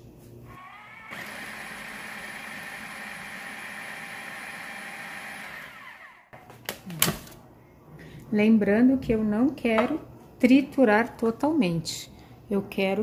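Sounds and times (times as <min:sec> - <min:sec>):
food processor chopping: 0:00.6 - 0:06.2.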